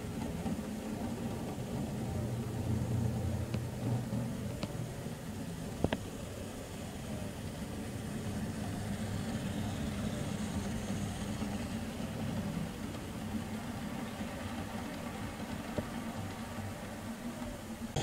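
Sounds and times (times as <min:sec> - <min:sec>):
model train rumbling on track: 0:00.0 - 0:18.0.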